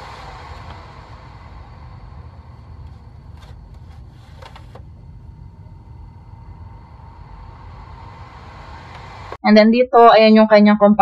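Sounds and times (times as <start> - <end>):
low background hum: 0.0 - 11.0
plastic scrapes and clicks: 3.4 - 4.9.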